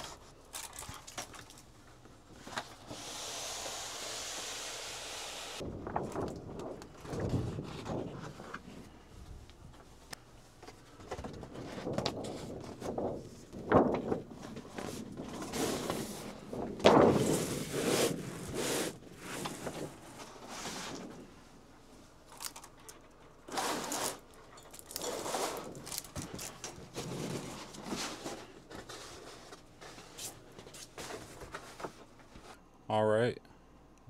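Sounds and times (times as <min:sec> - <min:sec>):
paper roll rustling and scraping: 0:02.3 - 0:09.0, 0:11.0 - 0:21.4, 0:23.4 - 0:32.6.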